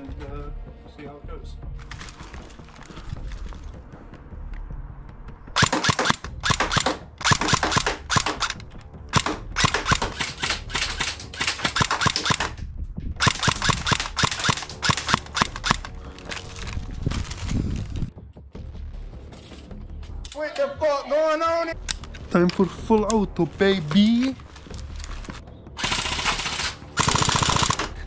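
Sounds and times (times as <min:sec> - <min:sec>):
airsoft rifle shots: 0:05.6 - 0:12.6, 0:13.2 - 0:15.8, 0:25.8 - 0:28.0.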